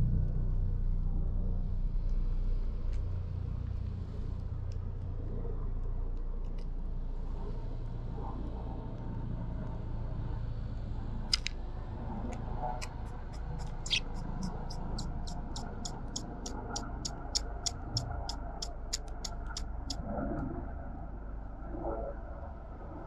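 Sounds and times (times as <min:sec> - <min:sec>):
road traffic rumble: 0:00.0 - 0:23.0
birds pecking seed on wood: 0:12.3 - 0:20.0.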